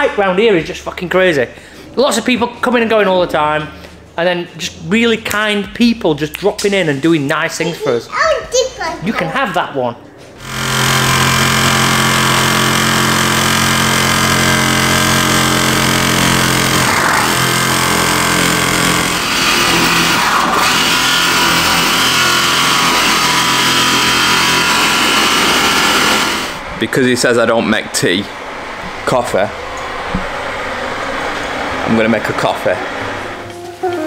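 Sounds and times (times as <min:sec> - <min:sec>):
motor running steadily: 0:10.4 - 0:33.4.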